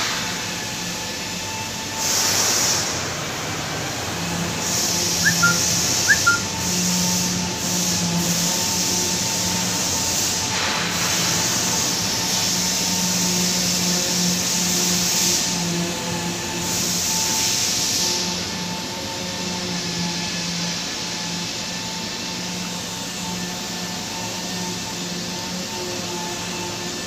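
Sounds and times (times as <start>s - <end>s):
factory machinery hum and hiss: 0.0s - 27.0s
short high chirps: 5.2s - 6.6s.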